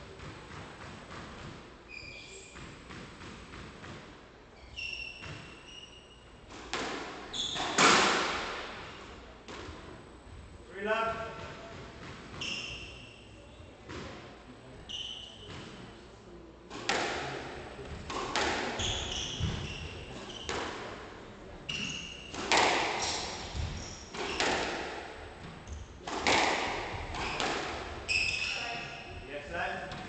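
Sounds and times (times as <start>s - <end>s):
shoes squeaking on wooden floor: 1.9s - 2.9s, 18.8s - 20.7s, 27.1s - 29.2s
squash ball cracking off walls: 18.0s - 18.8s, 22.3s - 25.0s, 26.0s - 27.8s.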